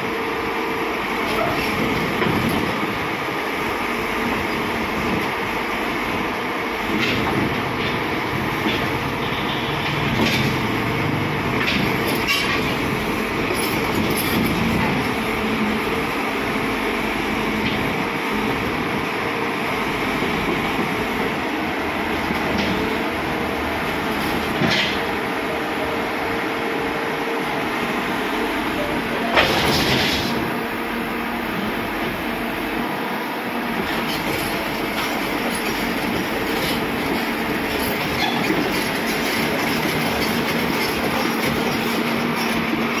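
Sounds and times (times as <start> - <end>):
excavator diesel engine running: 0.0 - 43.0
metallic rattle and squeal: 12.0 - 12.8, 34.0 - 43.0.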